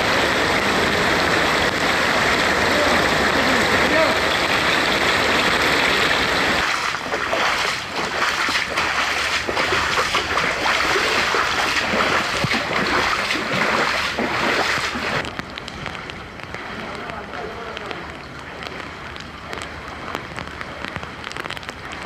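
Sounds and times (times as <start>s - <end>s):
floodwater rushing: 0.0s - 22.0s
boots wading through water: 4.4s - 22.0s.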